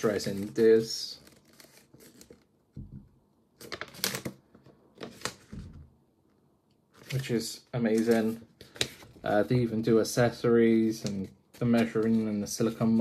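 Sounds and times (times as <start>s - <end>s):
paper pages rustling and flicking: 0.0s - 2.5s, 3.6s - 5.8s, 7.0s - 7.3s, 7.9s - 9.2s.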